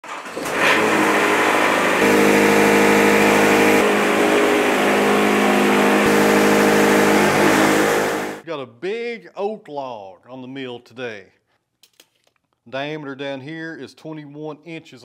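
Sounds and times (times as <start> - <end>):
sawmill engine humming: 0.4 - 8.4.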